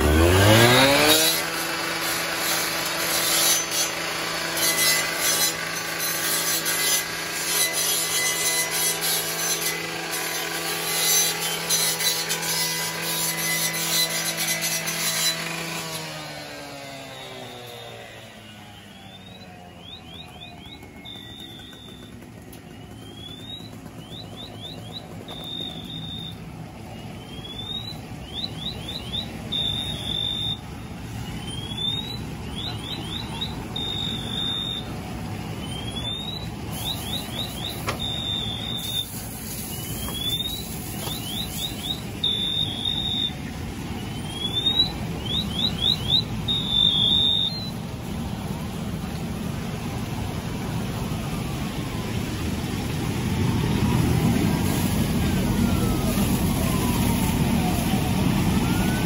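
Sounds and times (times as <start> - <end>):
car alarm: 17.4 - 26.4, 27.1 - 30.7, 31.4 - 35.0, 35.6 - 39.1, 39.8 - 43.4, 44.1 - 47.8.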